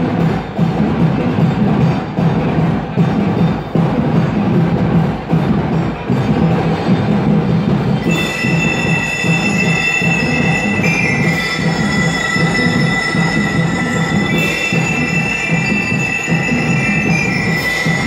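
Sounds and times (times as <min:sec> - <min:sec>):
drums beating: 0:00.0 - 0:18.0
bell lyres ringing: 0:08.0 - 0:18.0.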